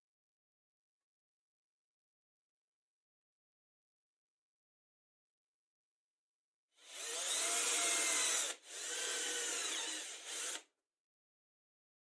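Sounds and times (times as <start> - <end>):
cordless drill boring into wood: 6.8 - 10.7.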